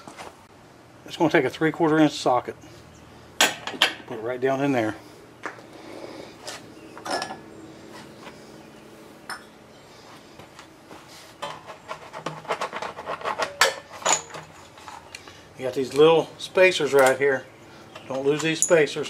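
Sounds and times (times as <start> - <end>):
small metal parts clinking: 13.3 - 15.3, 18.0 - 19.0.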